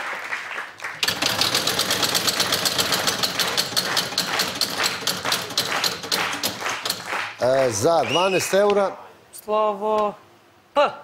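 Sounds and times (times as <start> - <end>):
prize wheel clicking: 1.0 - 7.0.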